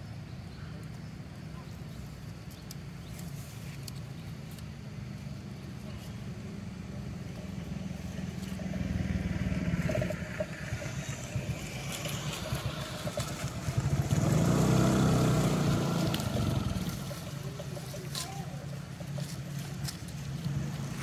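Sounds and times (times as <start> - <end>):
motor engine running: 5.6 - 21.0.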